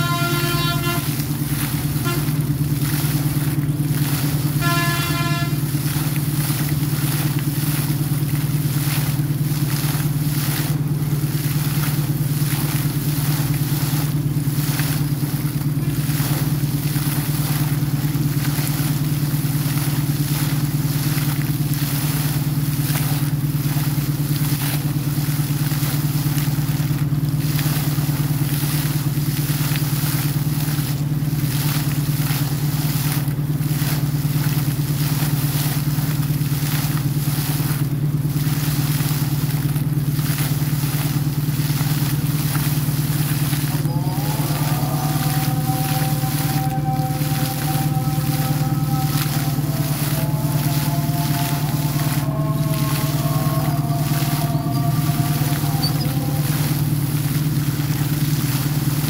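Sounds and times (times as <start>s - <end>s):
short pitched honk: 0.0s - 2.6s, 4.5s - 5.8s
air compressor droning: 0.0s - 59.0s
water and air blasting and splashing: 0.0s - 59.0s.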